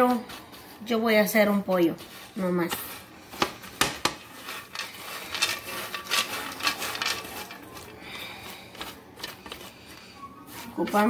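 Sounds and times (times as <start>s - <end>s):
spoon scraping pan: 2.0s - 8.0s
seeds rattling and clicking: 4.4s - 7.9s.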